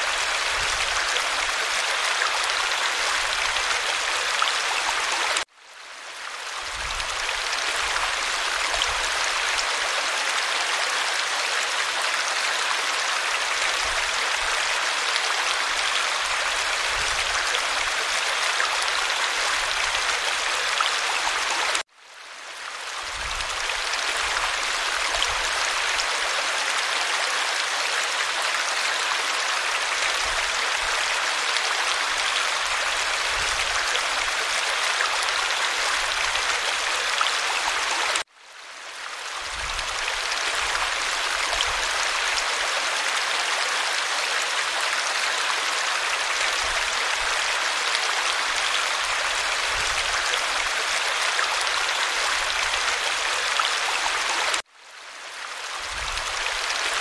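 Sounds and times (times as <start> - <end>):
stream rushing over cascade: 0.0 - 57.0.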